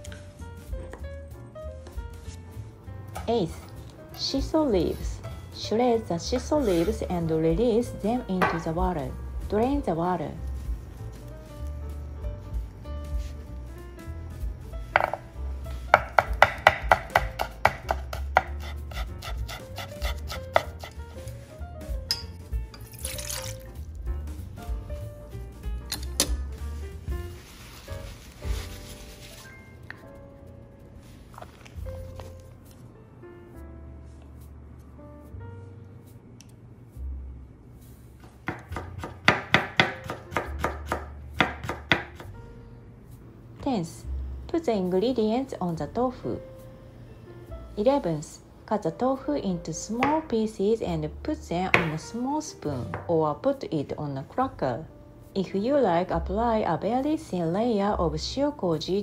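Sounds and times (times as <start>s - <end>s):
knife strikes on cutting board: 15.0s - 15.2s, 16.0s - 20.7s, 38.5s - 42.3s.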